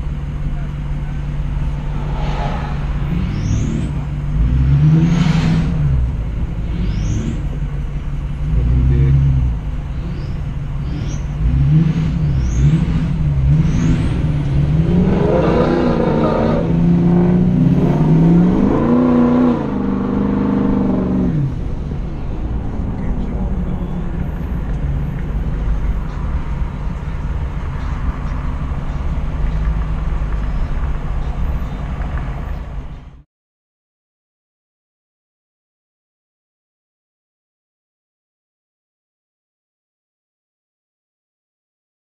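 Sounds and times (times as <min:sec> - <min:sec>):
diesel truck engine revving: 0:00.0 - 0:33.2.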